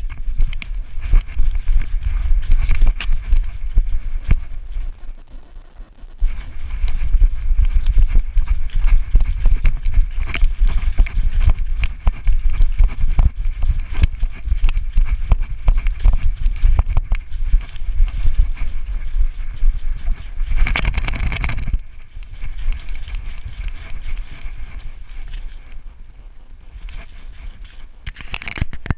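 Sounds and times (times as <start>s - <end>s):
rustling steps: 0.0s - 5.4s, 6.2s - 28.9s
heavy low rumble: 0.0s - 26.4s.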